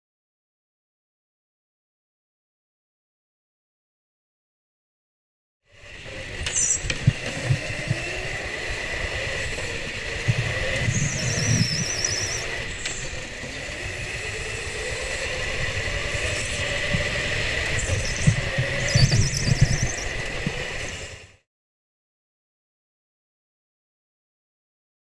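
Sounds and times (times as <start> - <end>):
go-kart engine whine: 5.7 - 21.4.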